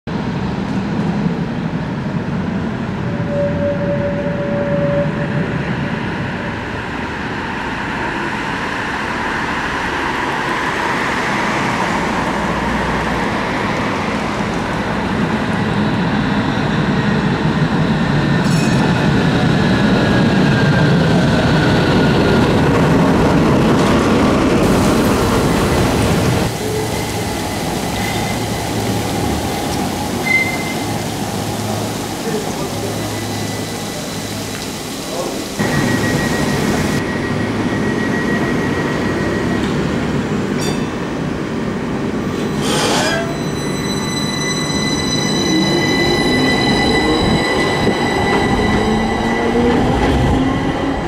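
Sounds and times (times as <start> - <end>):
tram rolling rumble: 0.1 - 51.0
brief steady tone: 3.1 - 5.5.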